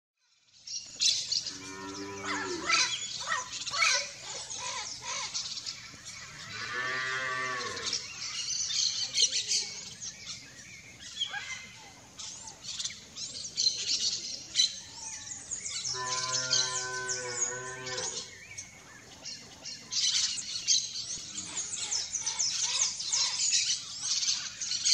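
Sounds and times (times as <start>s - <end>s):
birds chirping: 0.3s - 24.9s
cow mooing: 1.5s - 2.8s, 6.4s - 8.0s, 15.9s - 18.3s.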